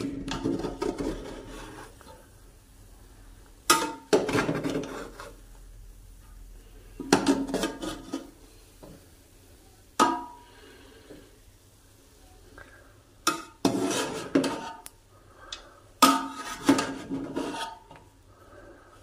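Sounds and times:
metal spoon scraping metal pot: 7.1s - 8.4s, 13.3s - 14.9s, 16.0s - 18.0s.

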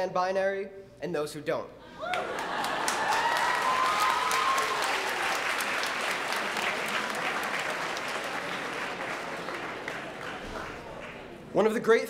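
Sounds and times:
audience laughing: 2.0s - 3.5s
audience clapping: 2.0s - 11.5s.

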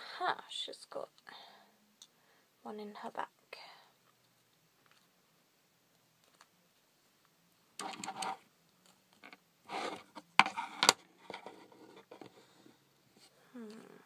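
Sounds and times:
plastic parts rustling and scraping: 7.8s - 13.3s.

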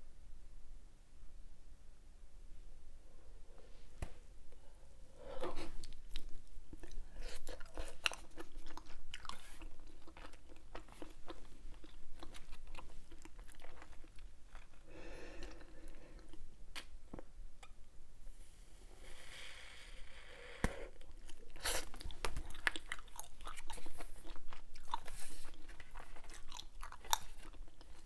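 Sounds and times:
chewing gum smacking: 5.4s - 16.9s, 21.0s - 28.0s.

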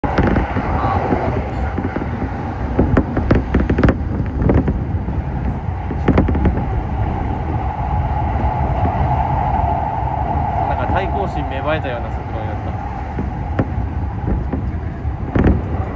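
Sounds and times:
wheels clattering over rail joints: 0.0s - 7.6s, 10.8s - 15.9s
train wheels rumbling on rails: 0.0s - 15.9s.

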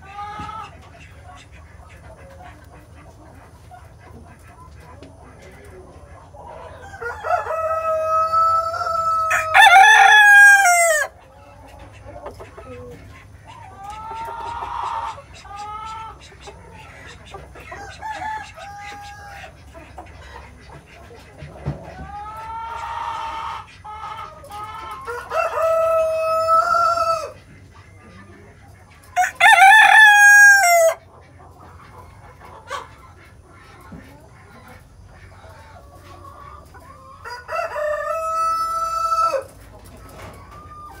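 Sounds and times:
hens clucking softly: 0.0s - 41.0s
rooster crowing: 6.8s - 11.1s, 17.8s - 19.4s, 25.0s - 27.4s, 29.2s - 31.0s, 37.2s - 39.5s.

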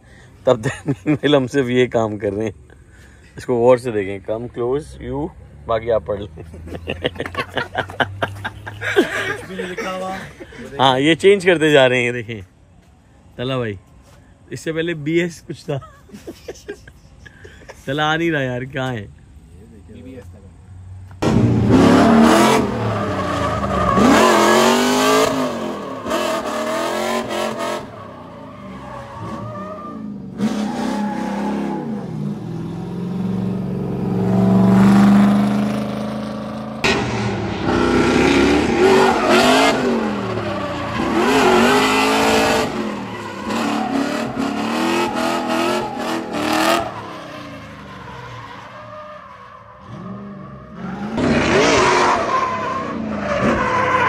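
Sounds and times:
car engine revving hard: 21.2s - 27.9s, 30.0s - 47.2s, 49.9s - 53.6s
tyres squealing and skidding: 21.6s - 54.0s.

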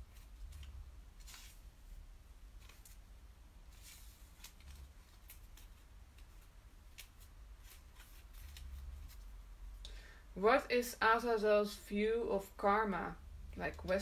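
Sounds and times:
faint rustle: 3.6s - 9.4s.

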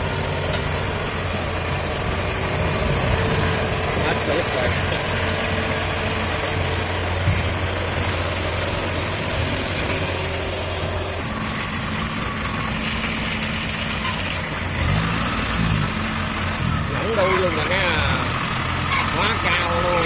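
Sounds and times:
harvester engine idling: 0.0s - 20.0s.

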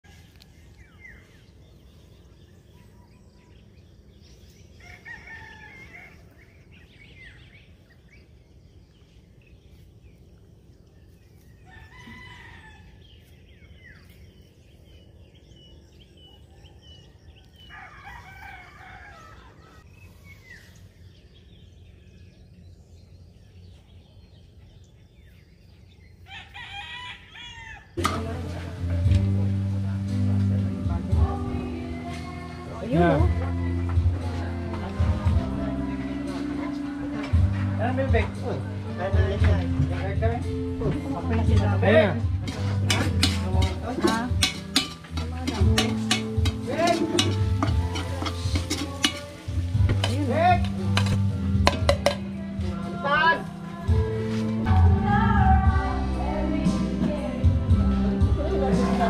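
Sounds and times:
small birds chirping: 0.0s - 28.0s, 30.3s - 55.9s
rooster crowing: 4.8s - 6.5s, 11.6s - 13.2s, 16.4s - 19.9s, 26.2s - 28.0s.

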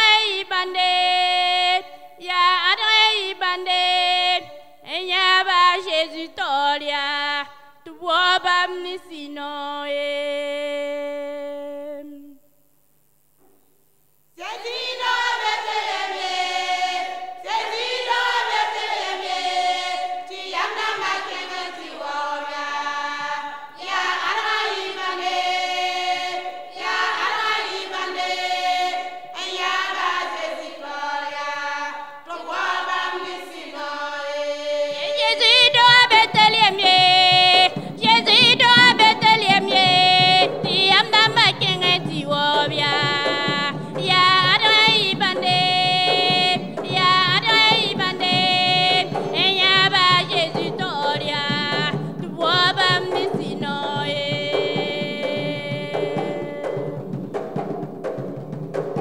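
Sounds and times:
women's choir singing unaccompanied: 0.0s - 12.4s, 14.4s - 57.7s
deeper voices singing: 14.4s - 57.1s.

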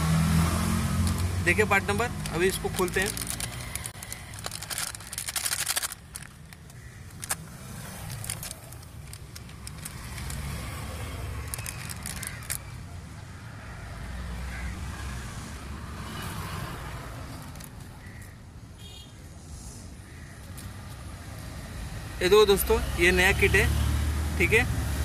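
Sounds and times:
small parts clicking: 1.0s - 10.8s, 11.4s - 12.6s
plastic packets crinkling: 1.0s - 12.6s.

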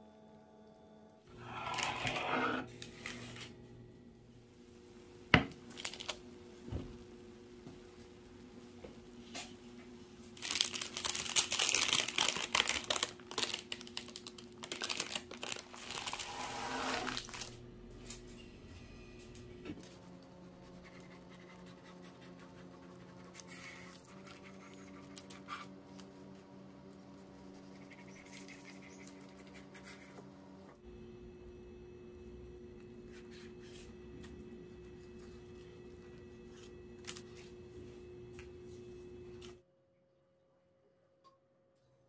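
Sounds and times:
baking paper crinkling: 5.6s - 6.3s, 10.3s - 17.6s
faint steady hum: 17.0s - 39.6s.

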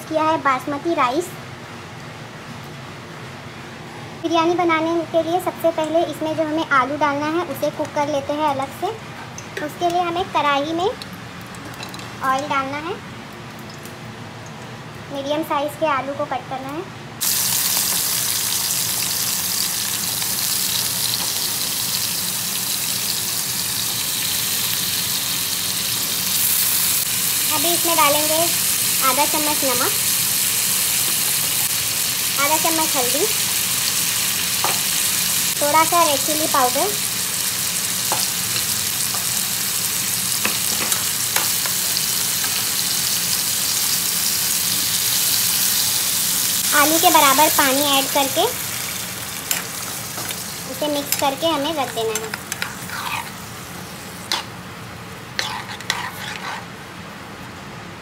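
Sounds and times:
potatoes sizzling in hot oil: 17.2s - 54.6s.

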